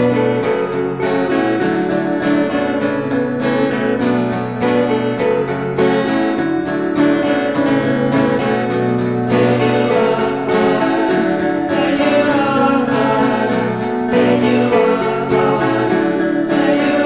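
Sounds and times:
strummed acoustic guitar: 0.0 - 17.0
person singing: 9.2 - 17.0.

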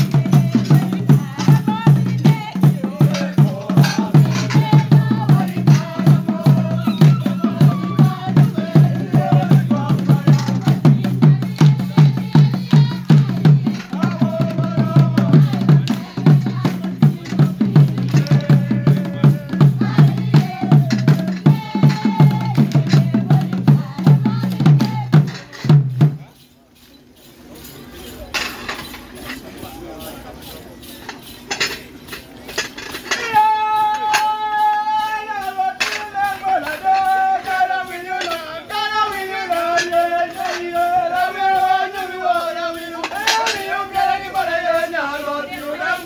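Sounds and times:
voices chanting: 0.0 - 25.8, 33.0 - 46.0
fast drumming: 0.0 - 26.3.

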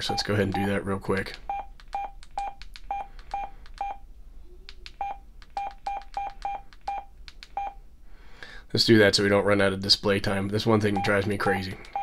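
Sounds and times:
radio key-press beeps: 1.4 - 4.0, 5.0 - 7.8, 11.0 - 12.0.

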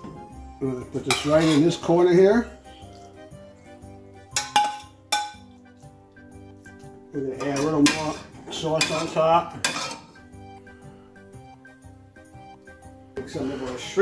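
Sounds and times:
ladle scraping in pot: 1.1 - 1.9, 7.4 - 10.2.

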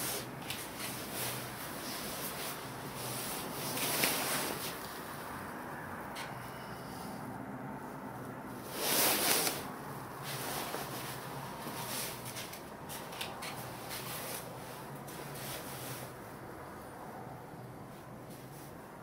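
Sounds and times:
light clicks and rustles: 10.3 - 16.1.

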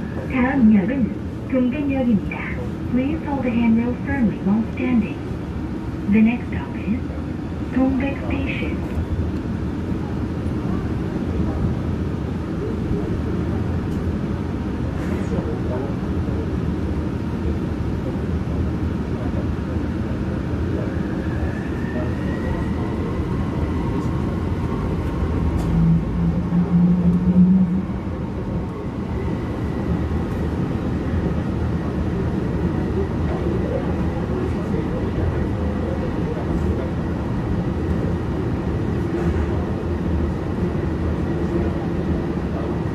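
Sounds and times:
train wheels rumbling on rail: 0.0 - 42.9
high-pitched whine: 21.4 - 29.9
loud low drone: 24.0 - 29.7.

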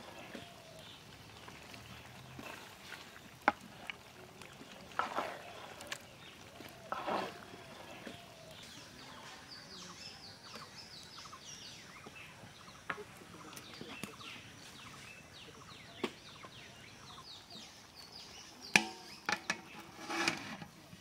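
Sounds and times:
birds chirping: 0.0 - 21.0
wooden spatula knocking on wok: 18.8 - 19.7
metal plate clattering onto wok: 18.8 - 20.6.

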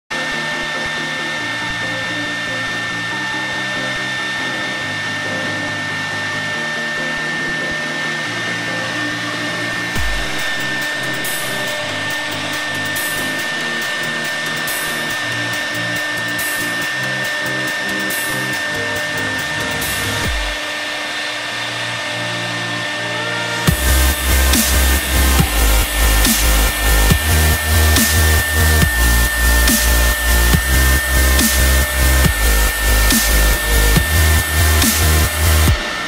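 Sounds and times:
wood router whining: 0.1 - 36.0
background music with beat: 9.8 - 20.6, 23.6 - 36.0.

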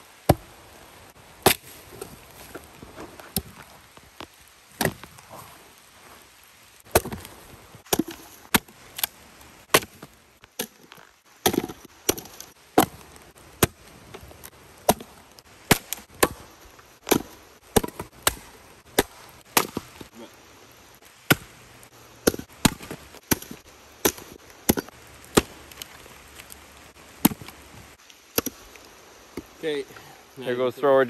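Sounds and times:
axe splitting wood: 1.4 - 2.2, 4.8 - 5.1, 6.9 - 9.1, 9.7 - 20.1, 21.2 - 21.5, 22.2 - 26.6, 27.2 - 27.6, 28.4 - 28.6.

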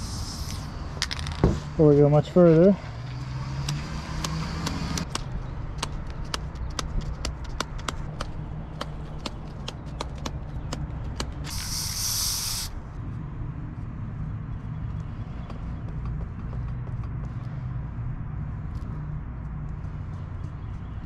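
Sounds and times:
aerosol spray can hissing: 0.0 - 0.8, 11.4 - 12.8.

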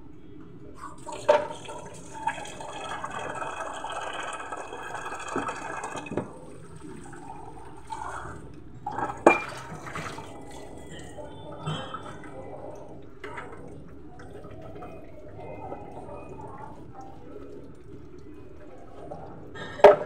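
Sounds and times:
dripping and splashing: 0.8 - 20.0
water running into a sink: 0.8 - 20.0.

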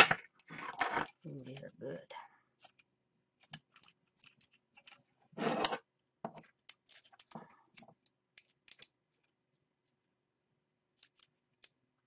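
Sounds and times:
small metal clicks and scrapes: 2.6 - 5.8, 6.6 - 8.9.

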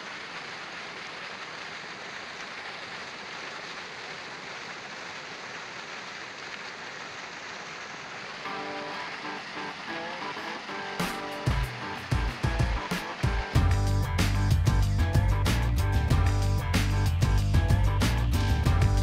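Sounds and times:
slurry gushing and splashing: 0.0 - 15.2.

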